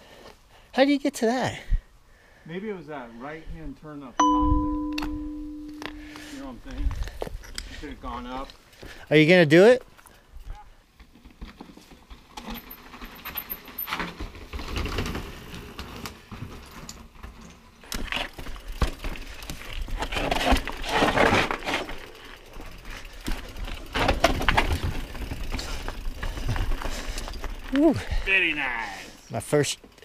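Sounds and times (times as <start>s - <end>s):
bike rattling: 10.8s - 30.0s.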